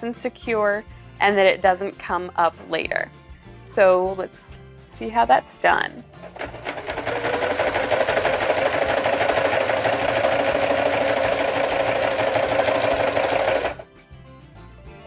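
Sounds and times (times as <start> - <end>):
sewing machine stitching: 6.2 - 13.8.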